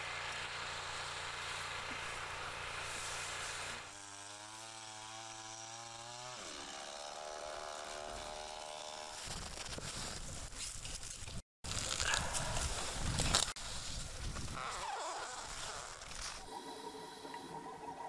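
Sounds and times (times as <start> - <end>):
small engine droning: 0.0 - 9.7.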